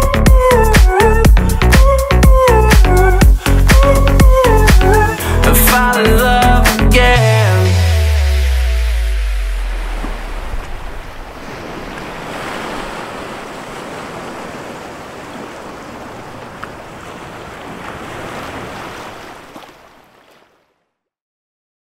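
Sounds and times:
ocean waves washing: 0:07.6 - 0:20.8.

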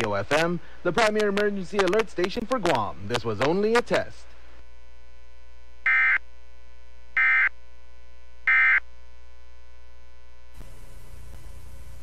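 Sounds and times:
faint hiss: 0:00.0 - 0:04.8, 0:10.5 - 0:12.0
steady mains hum: 0:00.0 - 0:12.0.

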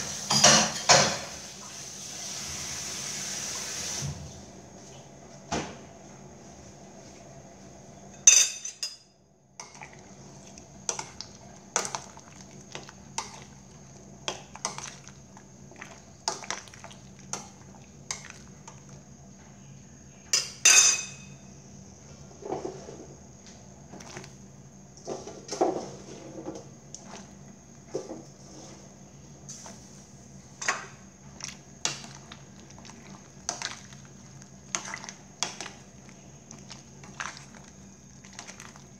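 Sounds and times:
metal spoon clinking on pot: 0:08.2 - 0:09.0, 0:20.4 - 0:21.3.

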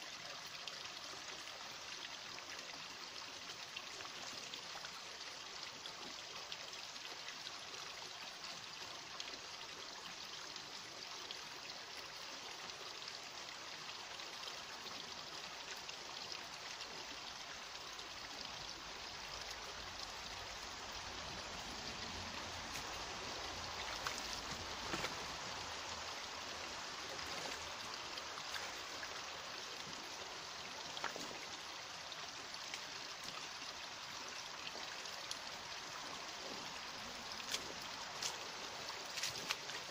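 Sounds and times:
rocky stream running: 0:00.0 - 0:39.9
faint splashes from wading: 0:21.4 - 0:30.1.

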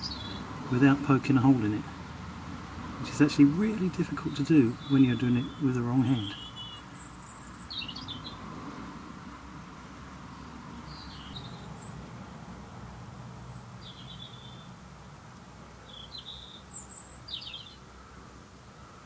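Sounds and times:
high bird chirps: 0:03.8 - 0:08.4, 0:10.9 - 0:12.0, 0:13.5 - 0:14.7, 0:15.8 - 0:17.8.

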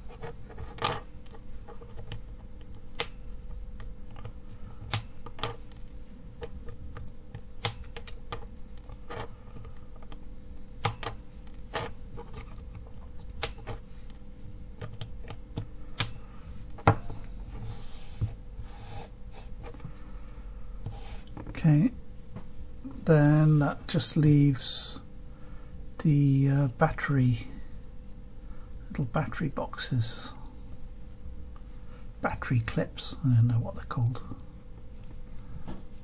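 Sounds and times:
side cutters snipping wire: 0:13.4 - 0:13.6.

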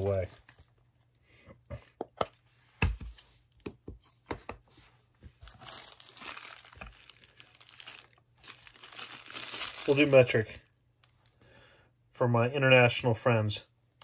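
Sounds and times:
plastic bag crinkling: 0:05.4 - 0:10.8.

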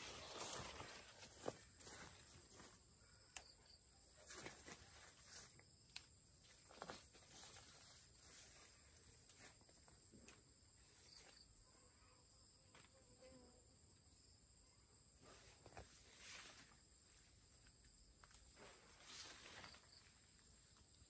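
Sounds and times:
rustles: 0:00.0 - 0:02.7, 0:06.4 - 0:09.7, 0:15.2 - 0:21.0.

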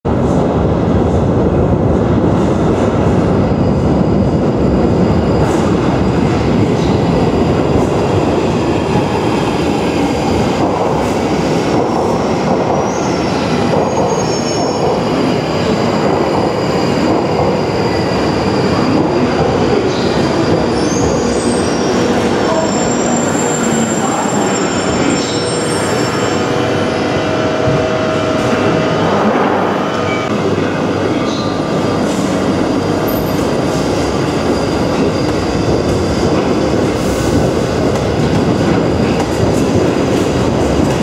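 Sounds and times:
train wheels rumbling on rails: 0:00.1 - 0:41.0
high wheel squeals: 0:13.9 - 0:27.5.

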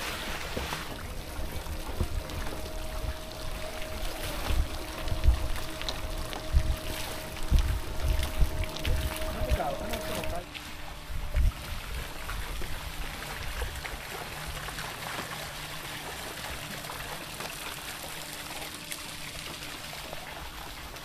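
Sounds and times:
water trickling into stone basin: 0:01.2 - 0:10.5.

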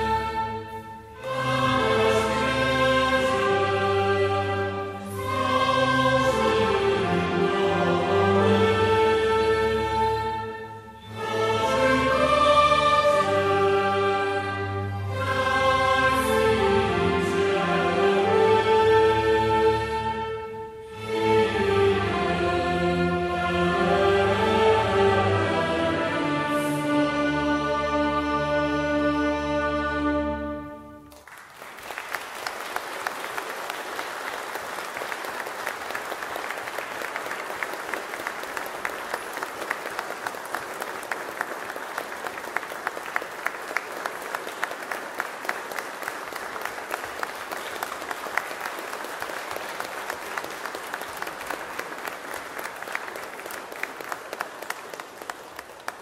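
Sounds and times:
orchestra and choir chord: 0:00.0 - 0:31.1
audience applauding: 0:31.1 - 0:56.0.

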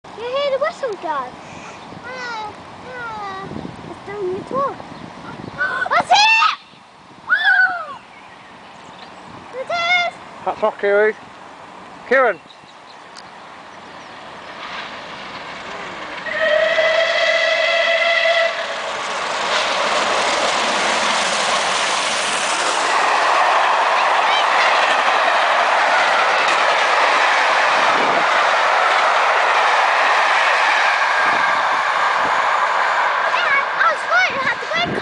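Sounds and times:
train wheels rumbling on rails: 0:12.4 - 0:35.0
steam locomotive whistle: 0:16.2 - 0:18.8.

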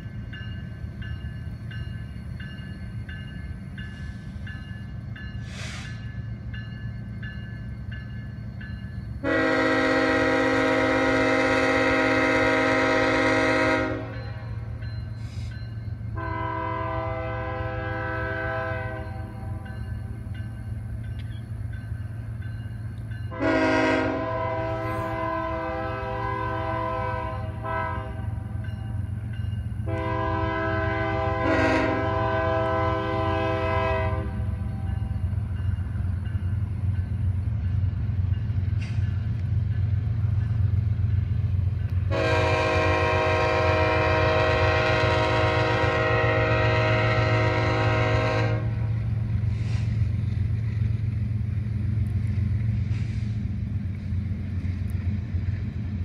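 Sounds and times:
low rumble of train rolling: 0:00.0 - 0:56.0
locomotive air horn blasts: 0:09.2 - 0:14.7, 0:16.1 - 0:19.6, 0:23.3 - 0:28.5, 0:29.8 - 0:34.9, 0:42.1 - 0:49.9.

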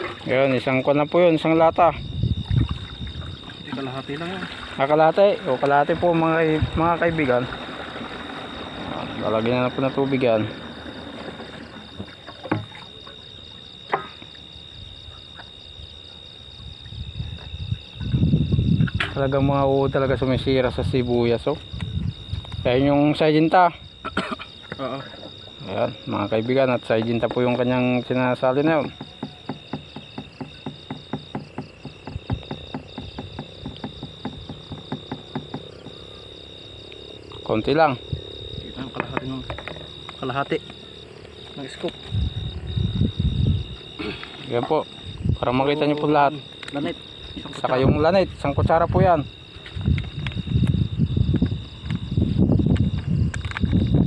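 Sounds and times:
night insects chirring: 0:00.0 - 0:54.0
plastic containers knocking: 0:26.8 - 0:27.9, 0:28.6 - 0:36.1, 0:38.8 - 0:40.8.

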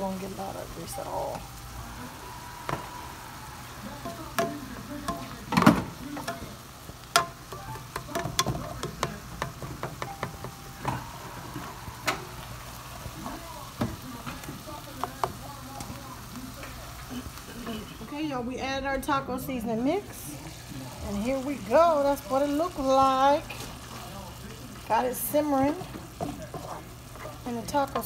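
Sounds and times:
meat sizzling in a pan: 0:00.0 - 0:28.0
spatula scraping a pan: 0:25.6 - 0:28.0.

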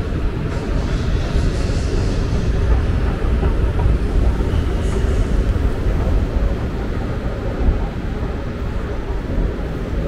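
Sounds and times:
subway train rumbling: 0:00.0 - 0:10.0
hiss: 0:00.4 - 0:05.6.

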